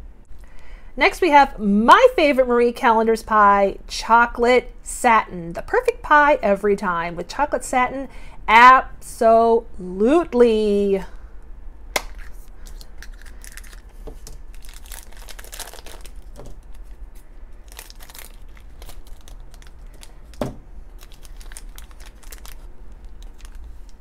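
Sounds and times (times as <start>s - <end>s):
plastic wrapper crinkling: 12.1s - 24.0s.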